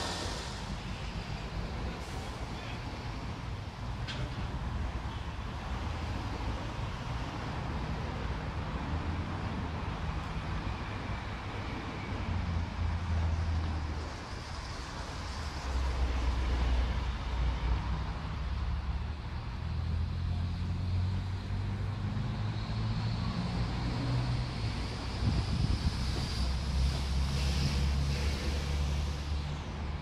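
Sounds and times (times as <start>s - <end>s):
low engine rumble: 0.0s - 5.7s.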